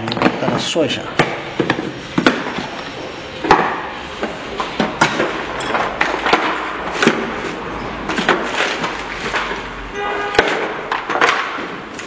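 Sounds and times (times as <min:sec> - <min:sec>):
tools clattering in plastic toolbox: 0:10.4 - 0:12.0.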